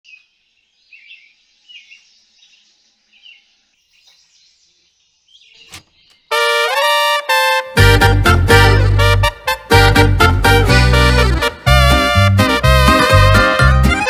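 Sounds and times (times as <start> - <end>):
faint bird chirps: 0.1 - 6.3
mariachi music with trumpet: 6.3 - 14.0.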